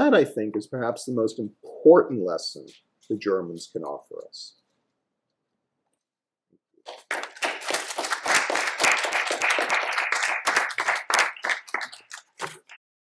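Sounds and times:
audience applauding: 0:06.9 - 0:12.8.

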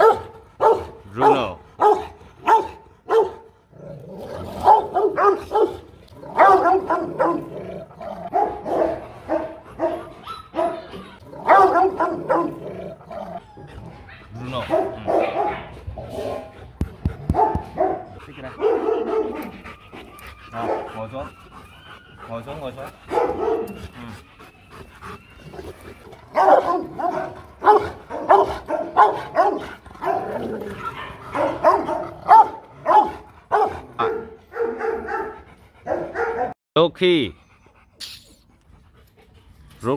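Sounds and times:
dog barking: 0:00.0 - 0:03.5, 0:04.6 - 0:07.5, 0:08.2 - 0:12.6, 0:14.5 - 0:16.5, 0:17.2 - 0:19.5, 0:20.6 - 0:21.0, 0:23.1 - 0:23.8, 0:26.3 - 0:36.6.

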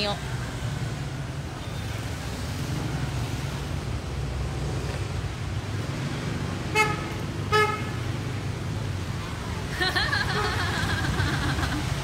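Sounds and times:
street traffic rumble: 0:00.0 - 0:12.0
vehicle horn toots: 0:06.7 - 0:08.0.

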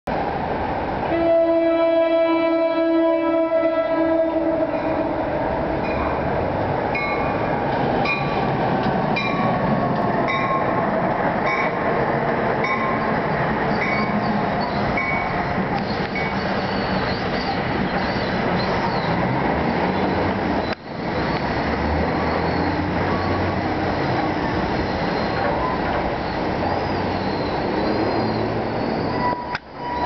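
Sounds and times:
train rumbling and rattling: 0:00.1 - 0:30.0
faint high squeals: 0:24.8 - 0:30.0.

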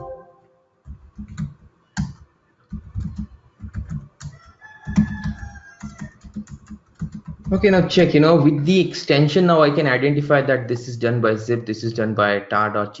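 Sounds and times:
thin high tone: 0:00.0 - 0:00.7
keyboard typing clicks: 0:00.8 - 0:07.6.

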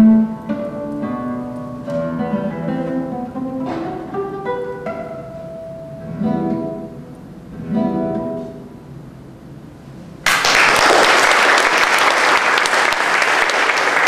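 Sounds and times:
classical guitar chord ringing: 0:00.0 - 0:09.3
audience applause: 0:10.2 - 0:14.0.

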